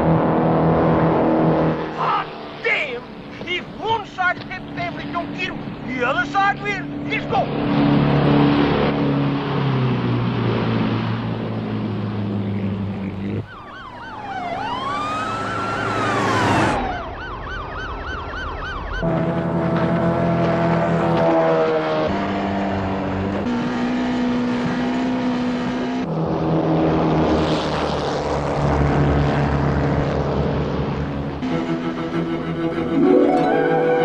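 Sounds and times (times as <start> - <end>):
speedboat engines racing: 0.0 - 17.2, 18.7 - 34.0
police siren wailing and yelping: 13.4 - 19.1, 32.6 - 34.0.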